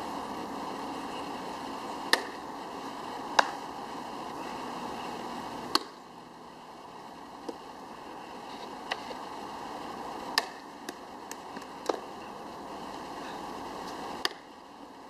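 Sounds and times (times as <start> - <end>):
steady background noise: 0.0 - 15.0
softball impacts: 2.1 - 2.4, 10.3 - 12.0.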